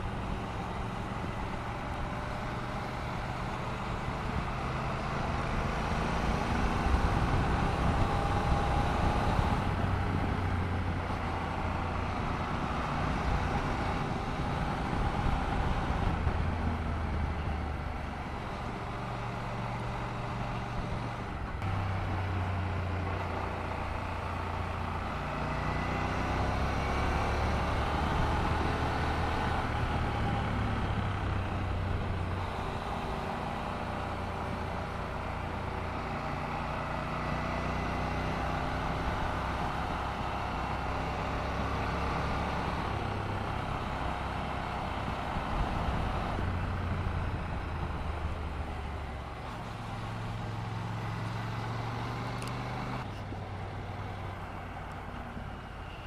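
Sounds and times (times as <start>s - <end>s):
wind and road noise: 0.0s - 56.0s.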